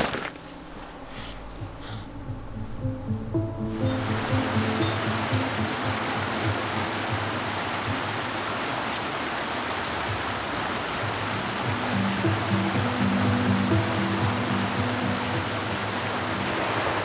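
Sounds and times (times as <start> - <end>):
background music: 0.4 - 8.5, 10.1 - 17.0
stream rushing over rocks: 2.8 - 17.0.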